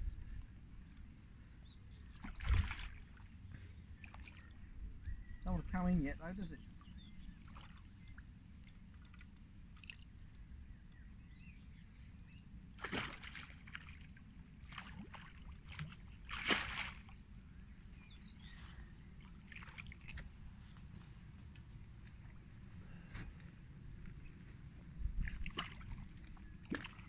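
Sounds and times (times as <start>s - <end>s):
fish splashing at water surface: 2.2s - 3.0s, 12.8s - 14.0s, 14.7s - 17.1s.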